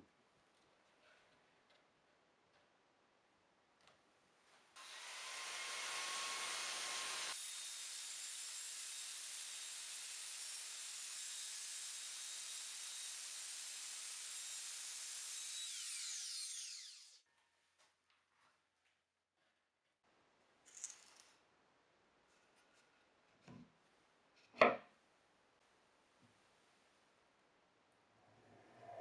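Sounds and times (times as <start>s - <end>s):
circular saw cutting plywood: 4.8s - 17.2s.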